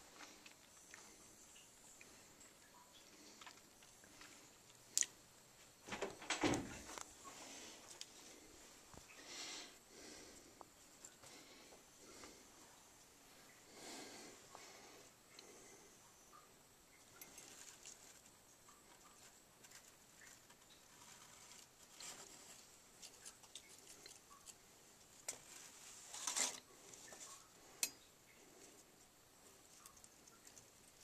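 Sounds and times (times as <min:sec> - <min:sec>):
handling clicks and rustles: 0:05.8 - 0:07.2.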